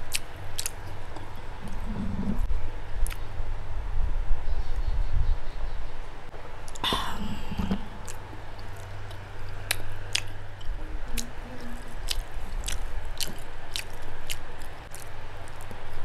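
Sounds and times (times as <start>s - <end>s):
chewing with wet mouth clicks: 0.0s - 1.3s, 8.0s - 16.0s
person swallowing: 6.7s - 8.2s.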